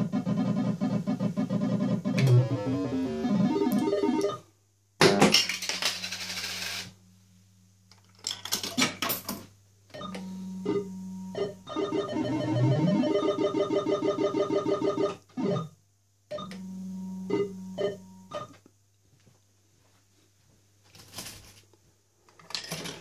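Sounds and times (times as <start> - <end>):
fruit machine electronic tune: 0.0 - 4.4, 10.1 - 15.6
electric hum of spinning reels: 5.9 - 7.0
low hum: 16.4 - 18.4.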